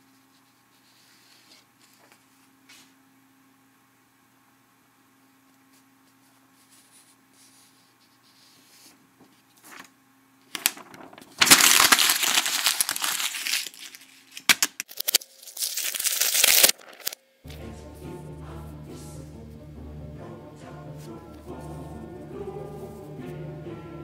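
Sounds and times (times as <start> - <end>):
paper crumpling and rustling: 9.4 - 9.9, 10.5 - 17.2.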